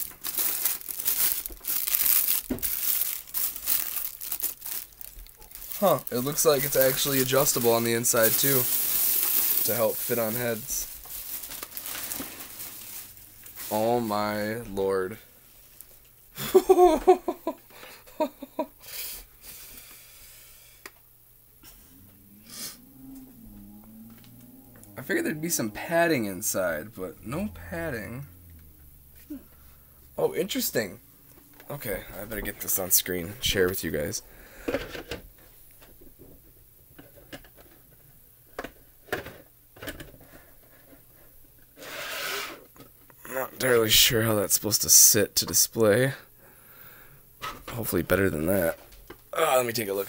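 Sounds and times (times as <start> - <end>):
breathy burst of noise: 18.8 - 20.9, 21.6 - 30.2
person's voice bursts: 24.9 - 28.5.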